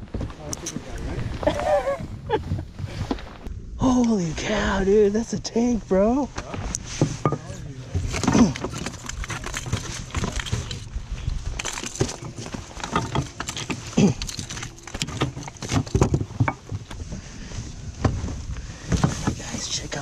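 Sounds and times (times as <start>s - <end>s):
net frame rattling: 11.6s - 17.0s.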